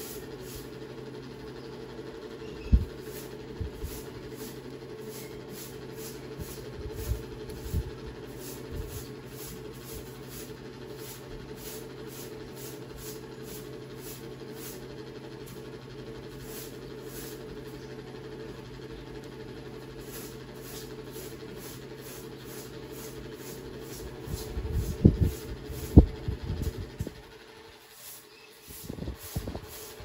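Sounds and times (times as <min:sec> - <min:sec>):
steady hum: 0:00.0 - 0:30.0.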